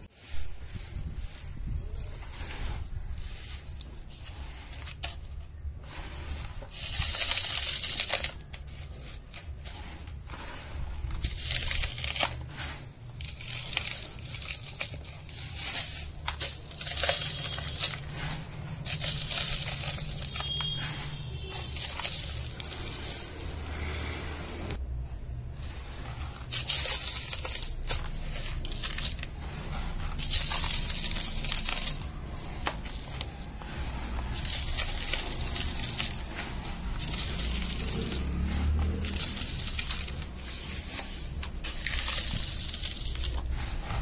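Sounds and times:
sand crunching: 0.0 - 4.9, 5.8 - 24.1, 25.7 - 44.0
sand pouring into plastic cup: 5.9 - 20.8, 25.8 - 44.0.

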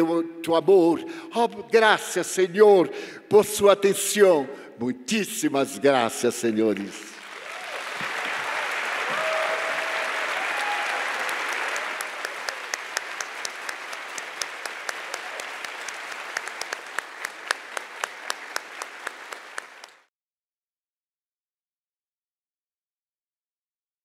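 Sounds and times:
audience applauding: 6.8 - 20.1.

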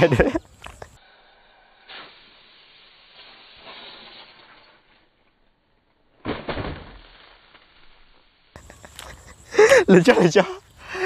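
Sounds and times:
gas hissing from bottle rocket: 0.2 - 5.2.

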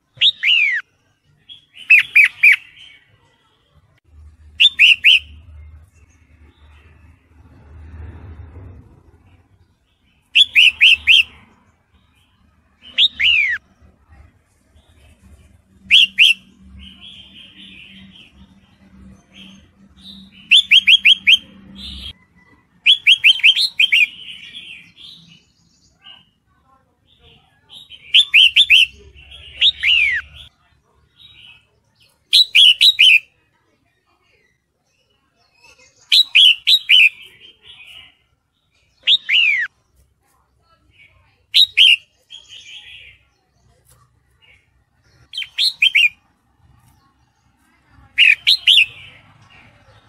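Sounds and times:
soft bird chatter: 0.0 - 50.0
soft bird chattering: 40.8 - 49.7.

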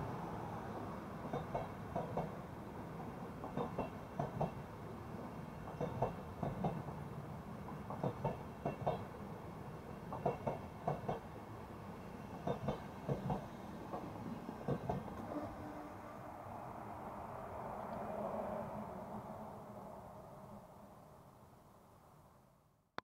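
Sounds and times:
train rolling rumble: 0.0 - 20.9
train wheels clicking over rail joint: 1.2 - 2.4, 3.4 - 4.6, 5.6 - 7.0, 7.6 - 9.1, 10.1 - 11.3, 12.3 - 15.3.

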